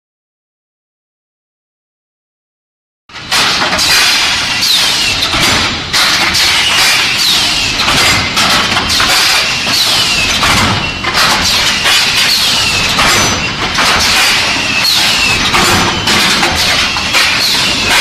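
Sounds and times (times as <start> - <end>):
machinery noise: 3.1 - 18.0
metallic knocks and clanks: 3.1 - 18.0.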